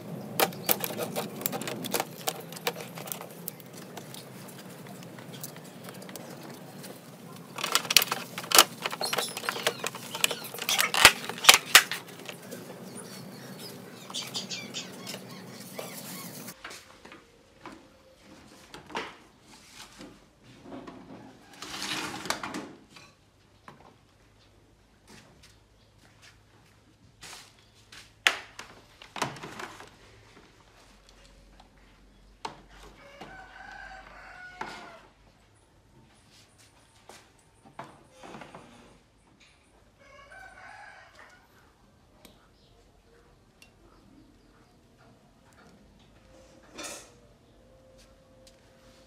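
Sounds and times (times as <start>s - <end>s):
clicks and knocks of parts handled: 0.3s - 12.6s.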